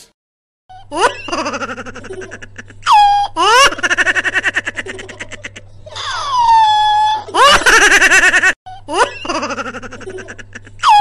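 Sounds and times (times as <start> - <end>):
high-pitched sped-up laughter: 0.7 - 11.0.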